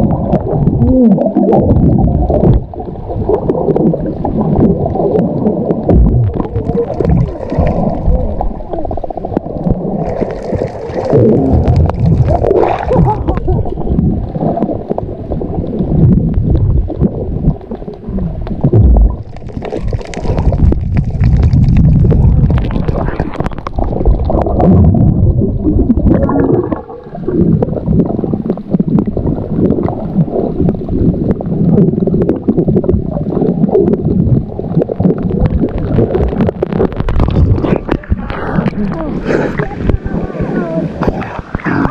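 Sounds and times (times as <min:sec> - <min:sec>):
muffled underwater gurgling: 0:00.0 - 0:41.9.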